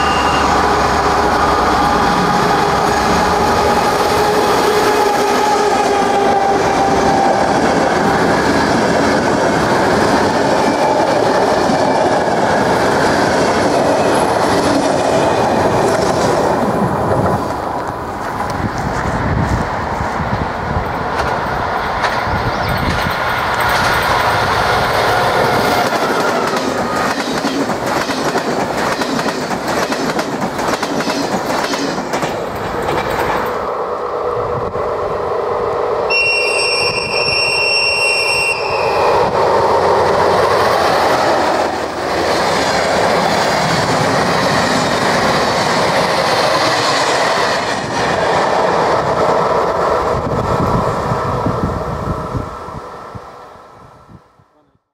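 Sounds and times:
high-pitched train whistle: 0.0 - 2.7, 36.0 - 39.4.

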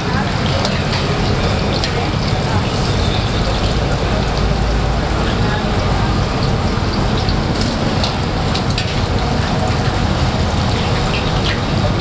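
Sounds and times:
meat sizzling in hot oil: 0.0 - 12.0
metal utensils clicking on pan: 0.4 - 2.4, 7.2 - 9.8.

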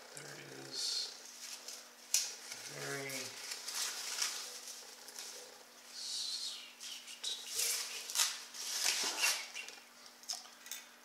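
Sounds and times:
foam wrap and cardboard rustling: 2.4 - 5.4, 7.5 - 9.6.

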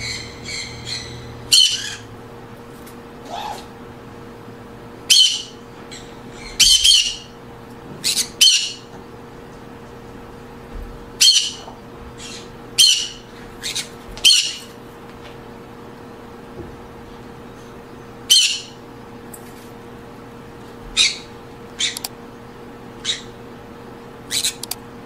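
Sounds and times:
parrots squawking: 0.0 - 2.2, 3.2 - 3.8, 5.1 - 7.4, 8.0 - 8.9, 11.2 - 14.7, 18.3 - 18.8, 21.0 - 22.1, 23.0 - 23.4, 24.3 - 24.7.

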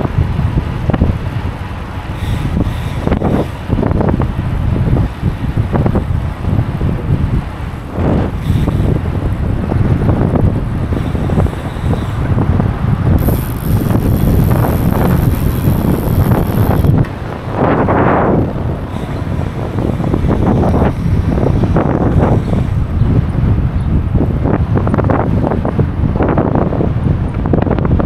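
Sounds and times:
low road rumble: 0.0 - 28.0
wind rushing over microphone: 0.0 - 28.0
thin high whine: 13.1 - 18.1.

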